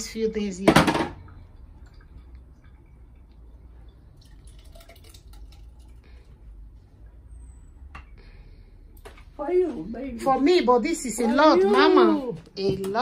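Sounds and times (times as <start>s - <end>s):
thick liquid trickling: 1.2s - 6.7s.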